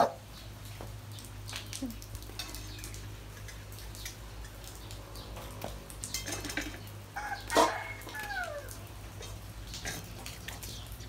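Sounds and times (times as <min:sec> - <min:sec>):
metallic clinks of food bowls: 0:02.3 - 0:04.7, 0:06.0 - 0:06.9.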